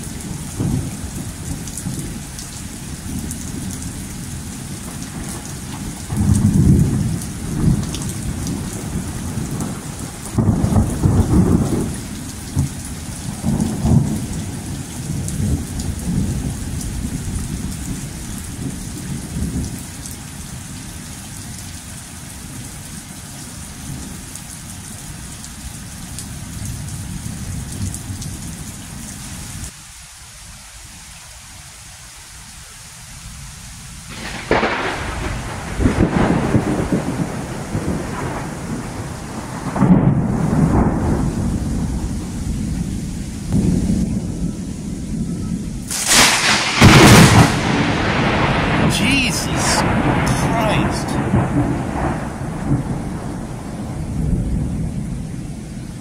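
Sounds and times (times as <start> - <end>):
thunder rumbling: 0.0 - 19.8, 34.1 - 56.0
heavy rain falling: 0.0 - 56.0.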